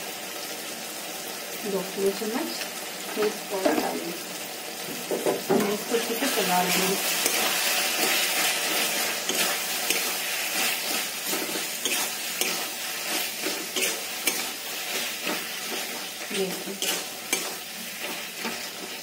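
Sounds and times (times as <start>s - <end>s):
vegetables sizzling in oil: 0.0s - 19.0s
spatula scraping a pan: 5.5s - 19.0s.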